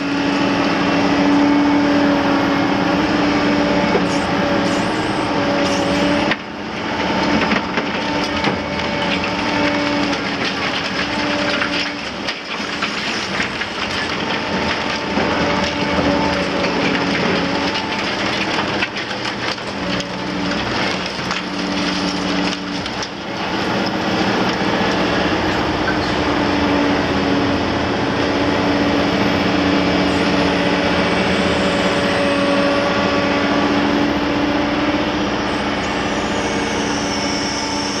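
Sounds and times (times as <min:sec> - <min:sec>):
excavator engine and hydraulics drone: 0:00.0 - 0:38.0
concrete cracking and crumbling: 0:05.6 - 0:25.2.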